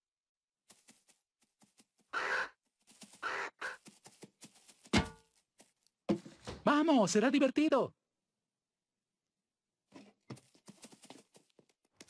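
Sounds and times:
cartoon ostrich squawks: 0:02.1 - 0:02.6, 0:03.2 - 0:03.8.

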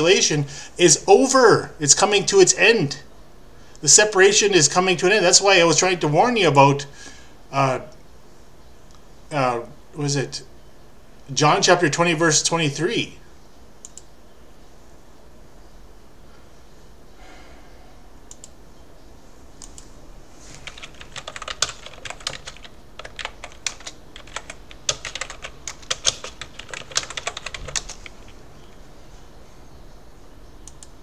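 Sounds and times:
typing on keyboard: 0:20.6 - 0:28.3.

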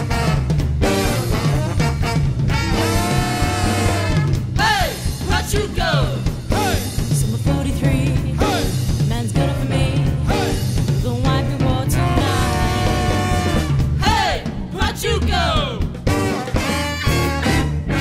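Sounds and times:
drum kit: 0:00.0 - 0:18.0
swing band playing live: 0:00.0 - 0:18.0
person singing: 0:04.6 - 0:15.8.

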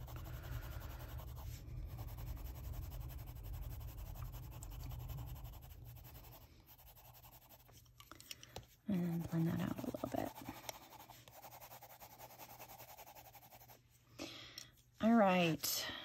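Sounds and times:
pencil scratching on paper: 0:00.0 - 0:07.8, 0:09.0 - 0:13.8
steady low hum: 0:00.0 - 0:16.0.

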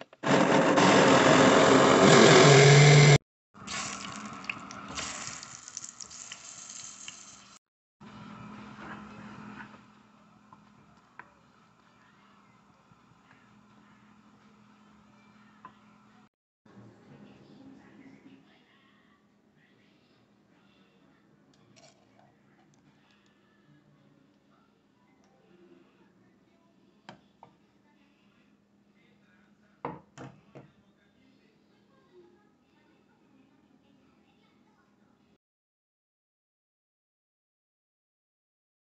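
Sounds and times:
slices frying in hot oil: 0:03.7 - 0:07.6.

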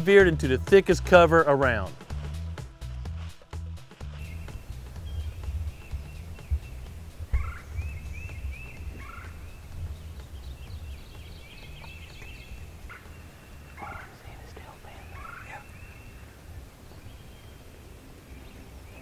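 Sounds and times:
steady low rumble: 0:01.8 - 0:19.0
turkey gobbling: 0:07.3 - 0:07.8, 0:09.0 - 0:09.4, 0:15.2 - 0:15.6.

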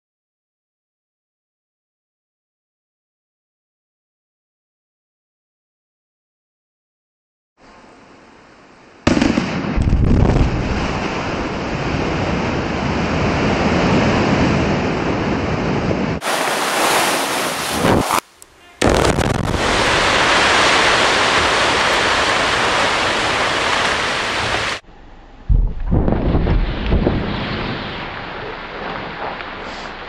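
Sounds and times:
explosive blasts: 0:09.0 - 0:16.3, 0:18.8 - 0:24.8, 0:25.5 - 0:30.0.

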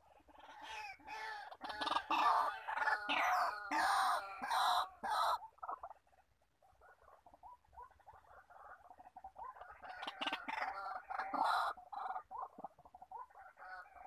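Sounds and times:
waterhen calling harshly: 0:00.3 - 0:05.8, 0:09.8 - 0:12.3.

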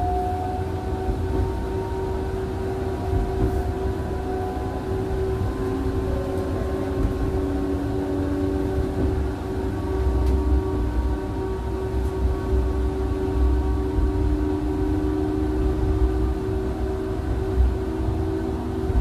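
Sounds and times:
tram wheels rumbling on rails: 0:00.0 - 0:19.0.

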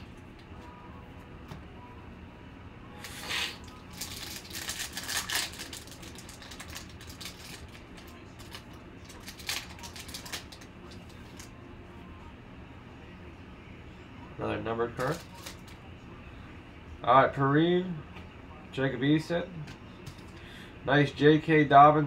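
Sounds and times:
foil wrapper crinkling: 0:03.6 - 0:11.5, 0:15.0 - 0:15.8.

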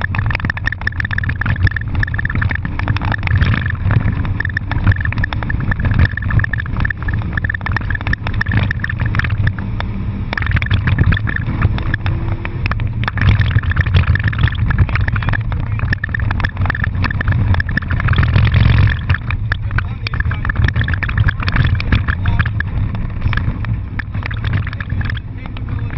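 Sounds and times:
car engine under load: 0:00.0 - 0:25.9
high whine: 0:00.0 - 0:25.9
sharp knocks and rattles: 0:00.0 - 0:25.9.

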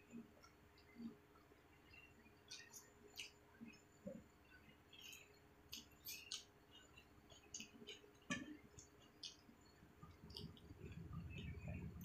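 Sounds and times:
mouth clicks and chewing: 0:00.1 - 0:12.0
fingers squishing rice: 0:02.4 - 0:12.0.

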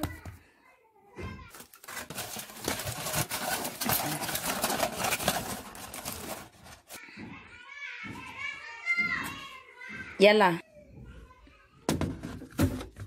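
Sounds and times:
aluminium foil crinkling: 0:01.5 - 0:07.0.

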